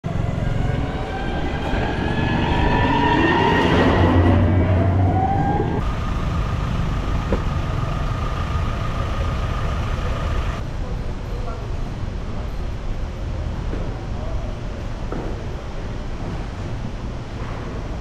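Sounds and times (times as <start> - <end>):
engine speeding up: 0.0 - 10.6
steady high whine: 0.0 - 13.5
vehicle engines rumbling: 0.0 - 18.0.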